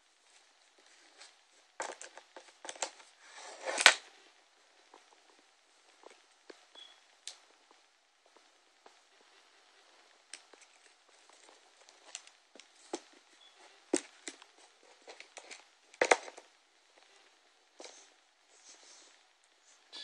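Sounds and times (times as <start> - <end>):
speaker being handled: 13.9 - 16.5.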